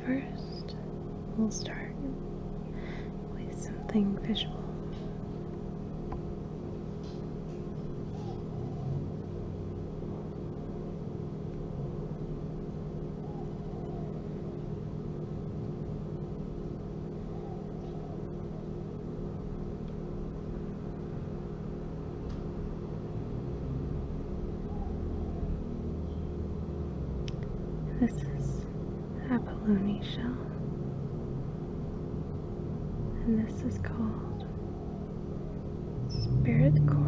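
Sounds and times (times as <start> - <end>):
low mechanical hum: 0.0 - 37.0.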